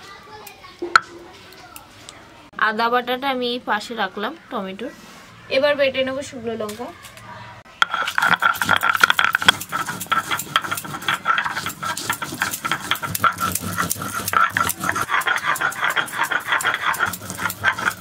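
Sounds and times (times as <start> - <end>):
stone grinding scraping: 7.8 - 18.0.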